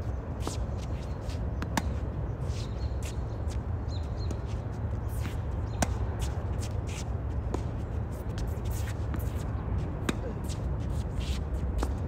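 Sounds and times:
shoe scuffs: 0:10.2 - 0:12.0.

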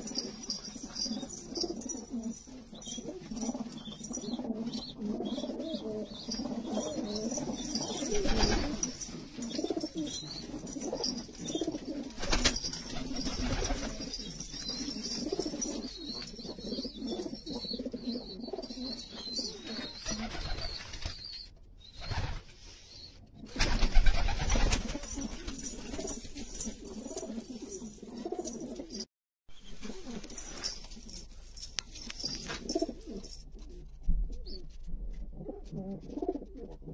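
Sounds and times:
pigeons cooing: 0:00.0 - 0:20.8, 0:24.0 - 0:29.0, 0:35.3 - 0:36.9.

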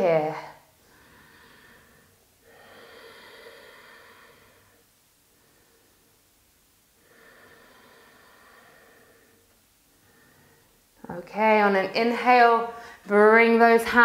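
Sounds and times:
woman breathing slowly: 0:00.4 - 0:11.0.

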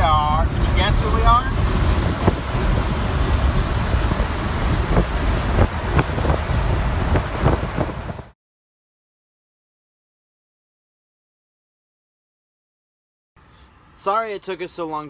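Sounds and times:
truck engine and road rumble: 0:00.0 - 0:08.4.

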